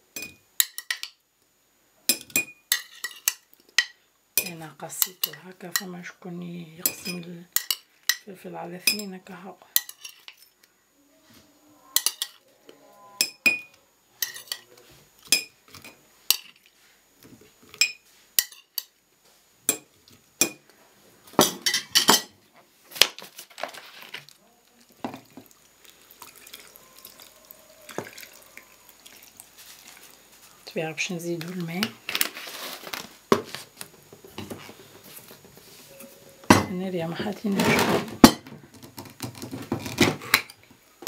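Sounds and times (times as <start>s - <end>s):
cutlery clinking on glass jar: 0.2s - 1.2s, 2.1s - 5.9s, 9.8s - 10.6s, 12.0s - 12.4s, 13.2s - 16.7s, 17.7s - 18.9s, 21.4s - 22.3s
clatter of cutlery: 9.8s - 10.6s, 13.2s - 14.7s, 21.4s - 22.3s.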